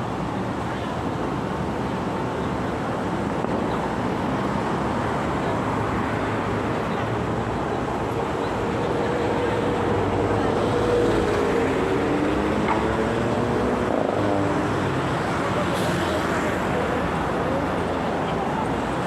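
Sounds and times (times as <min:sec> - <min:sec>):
road traffic hum: 0:00.0 - 0:19.0.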